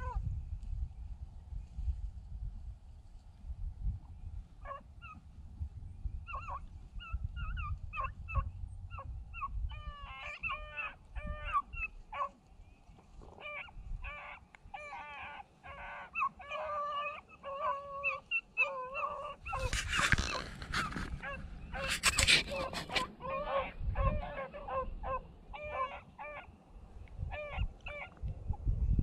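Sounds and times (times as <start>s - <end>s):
dry grass rustling on microphone: 0.0s - 14.8s, 15.4s - 29.0s
hounds yelping: 4.6s - 5.2s, 6.2s - 12.4s, 13.2s - 26.6s, 27.2s - 28.2s.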